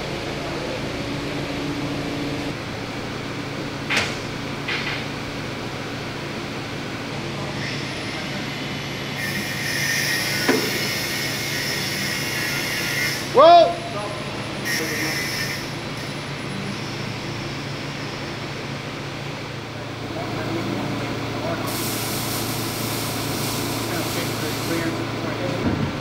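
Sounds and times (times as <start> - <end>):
forklift engine humming: 0.0 - 26.0
hiss: 9.2 - 13.3, 21.6 - 25.0.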